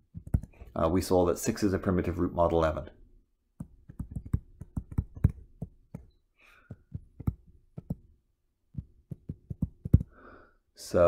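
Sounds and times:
stylus tapping on tablet screen: 0.1s - 0.7s, 3.6s - 8.1s, 8.7s - 10.2s.

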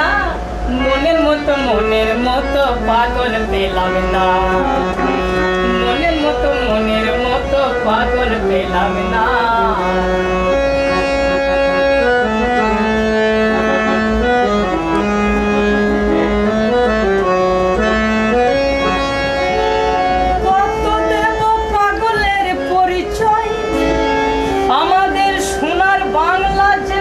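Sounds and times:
person singing: 0.0s - 10.5s, 20.5s - 27.0s
harmonium melody over drone: 0.0s - 27.0s.

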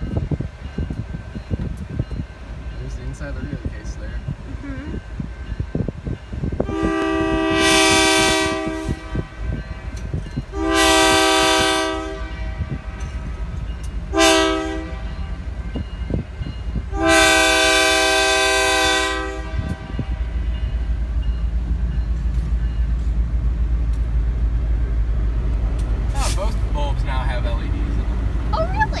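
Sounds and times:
train rumble: 0.0s - 29.0s
locomotive air horn blasts: 6.6s - 13.4s, 14.1s - 15.4s, 16.9s - 20.5s.

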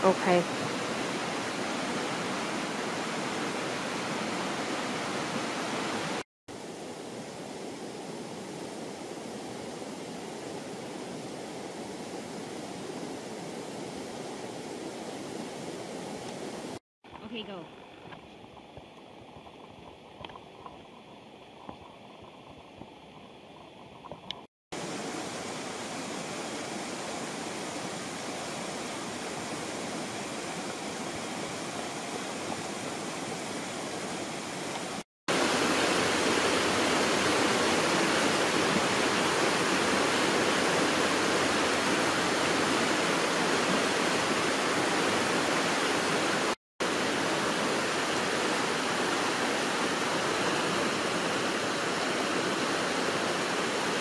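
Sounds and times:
river water rushing over rocks: 0.0s - 16.8s, 24.8s - 54.0s.

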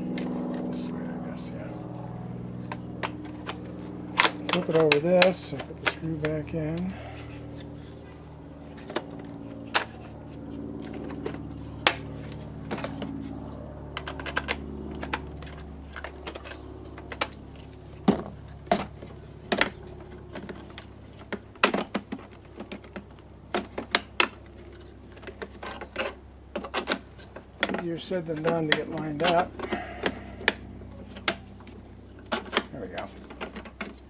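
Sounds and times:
hard plastic parts clicking: 2.6s - 8.0s, 13.9s - 34.0s.

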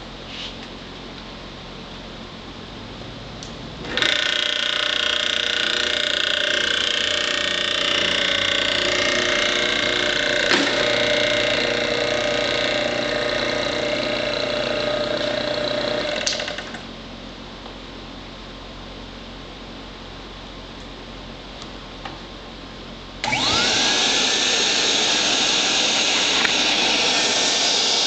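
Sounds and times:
small machine motor whining: 3.8s - 16.8s, 23.2s - 28.0s.

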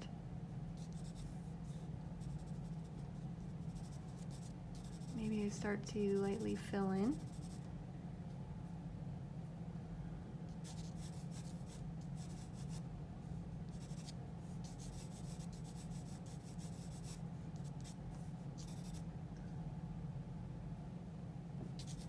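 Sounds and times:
steady low hum: 0.0s - 22.0s
pencil shading on paper: 3.7s - 5.2s.

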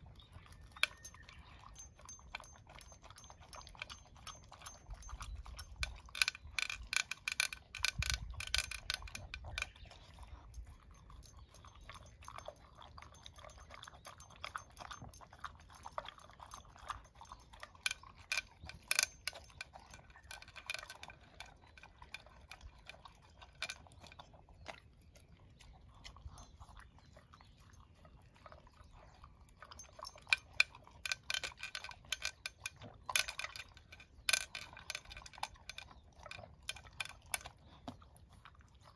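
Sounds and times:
dog crunching kibble: 0.0s - 28.9s, 29.6s - 38.9s
kibble clattering against plastic bowl: 5.6s - 9.8s, 17.3s - 23.8s, 29.8s - 37.5s.

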